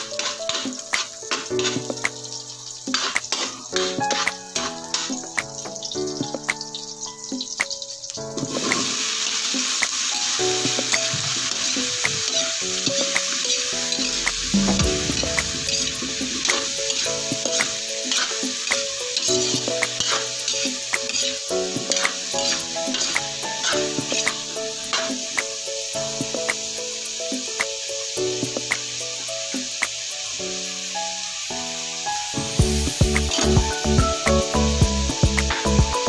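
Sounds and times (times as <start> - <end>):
vegetables sizzling in hot oil: 0.0 - 36.0
utensil scraping a wok: 13.9 - 24.3.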